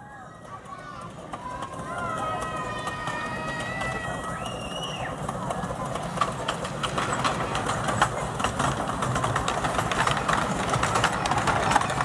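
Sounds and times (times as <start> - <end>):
miniature steam locomotive running: 0.0 - 12.0
wheels rumbling on track: 0.0 - 12.0.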